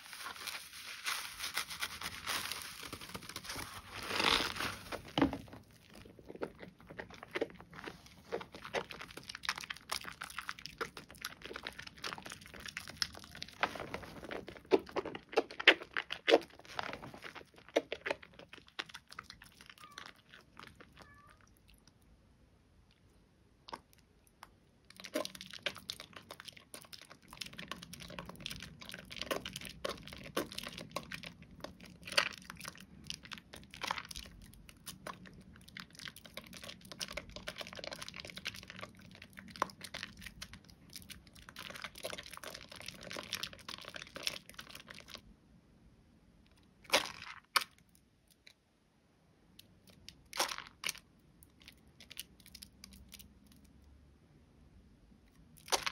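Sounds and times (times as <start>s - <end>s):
soap being lathered into foam: 0.0s - 5.2s.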